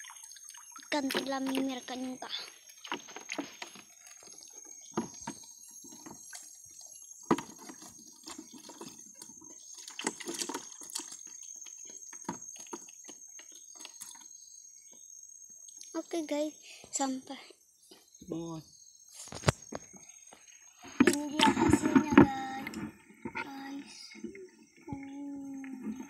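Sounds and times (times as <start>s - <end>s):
water dripping and splashing: 0.0s - 14.3s.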